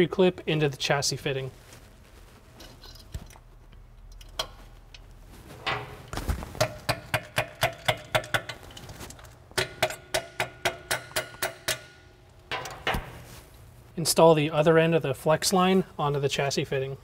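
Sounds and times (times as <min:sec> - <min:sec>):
small hammer tapping metal: 0:06.6 - 0:08.6, 0:09.6 - 0:12.8.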